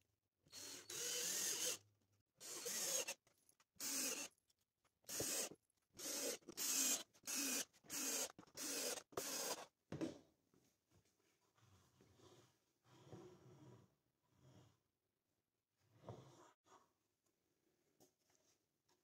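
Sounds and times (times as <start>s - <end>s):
cordless drill whirring: 0.5s - 1.8s, 2.4s - 3.2s, 3.8s - 4.3s, 5.1s - 9.6s.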